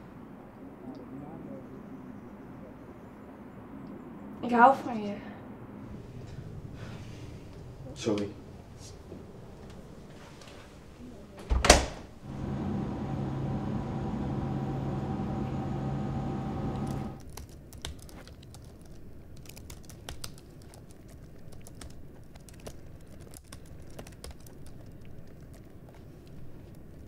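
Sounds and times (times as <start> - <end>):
train carriage running hum: 12.1 - 17.2
laptop keyboard typing: 14.9 - 27.0.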